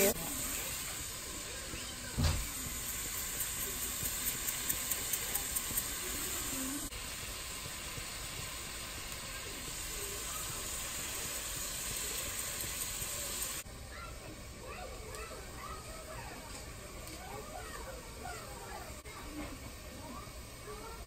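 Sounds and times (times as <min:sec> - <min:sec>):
vegetables sizzling in a pot: 0:00.0 - 0:21.0
thump: 0:02.2 - 0:02.5.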